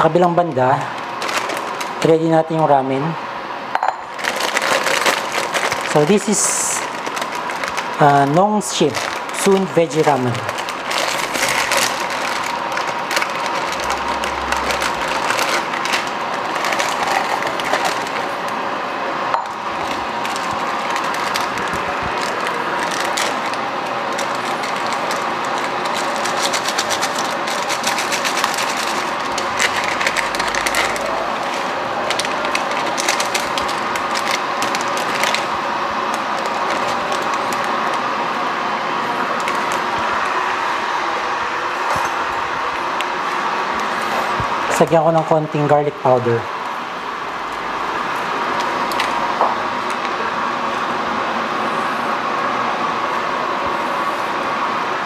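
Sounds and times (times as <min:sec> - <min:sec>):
noodle packet crinkling: 0:00.2 - 0:02.2, 0:04.1 - 0:18.6, 0:19.4 - 0:41.1, 0:47.9 - 0:50.2.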